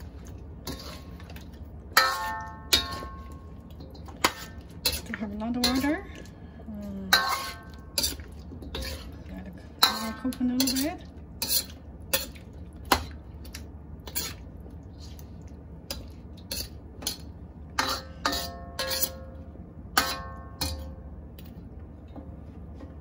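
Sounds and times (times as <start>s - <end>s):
metal ladle clinking in wok: 2.0s - 5.0s, 7.1s - 9.0s, 9.8s - 12.3s, 20.0s - 21.0s.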